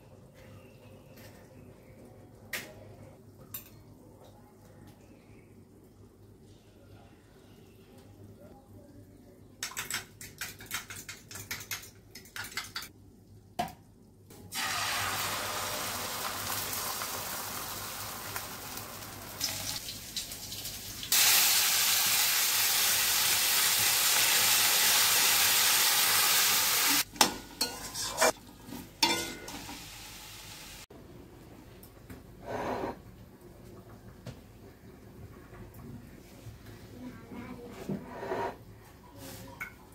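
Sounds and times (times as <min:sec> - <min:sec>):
potatoes sizzling in hot oil: 0:14.5 - 0:28.6, 0:29.3 - 0:30.8
kitchenware clinking: 0:27.2 - 0:28.4, 0:29.0 - 0:29.8
spatula scraping a pan: 0:27.6 - 0:28.4.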